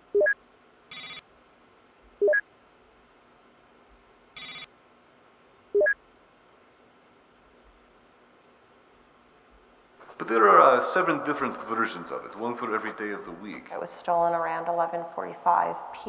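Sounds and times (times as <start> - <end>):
faint steady hum: 0.0 - 16.0
quick rising bleep: 0.2 - 1.2, 4.4 - 4.7
high bright ringing trill: 0.9 - 1.2, 4.4 - 4.7.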